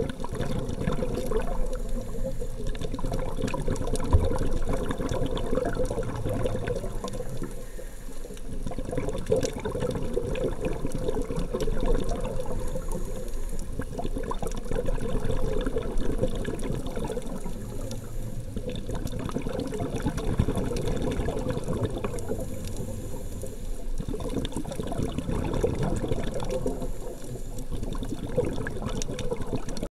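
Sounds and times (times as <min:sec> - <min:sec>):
fine crackling clicks: 0:00.0 - 0:10.1, 0:15.6 - 0:24.8, 0:28.8 - 0:29.9
muffled water rushing underwater: 0:00.0 - 0:29.9.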